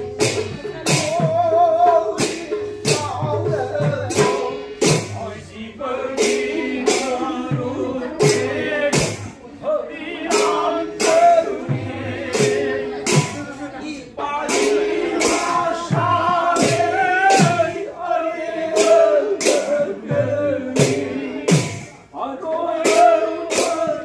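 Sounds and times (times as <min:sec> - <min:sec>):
man singing: 0:00.0 - 0:24.0
sharp percussion beat: 0:00.0 - 0:24.0.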